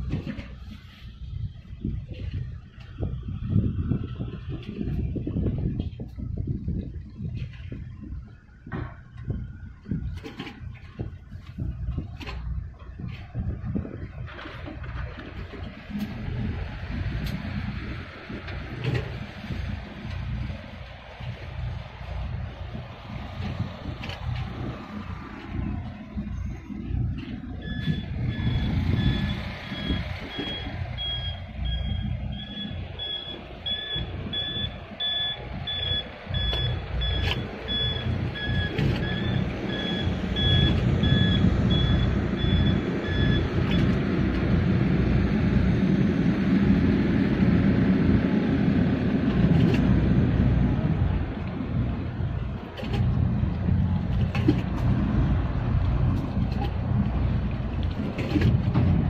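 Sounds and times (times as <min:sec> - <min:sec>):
loud low rumble: 0:00.0 - 0:59.0
reversing warning beeper: 0:27.6 - 0:44.0.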